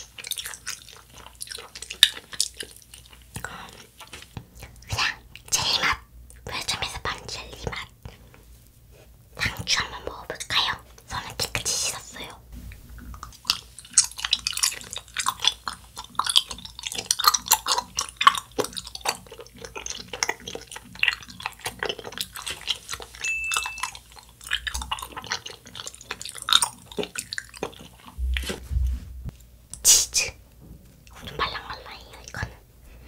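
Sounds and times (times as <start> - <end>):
chewing with wet mouth clicks: 0.0 - 5.5, 13.0 - 28.6.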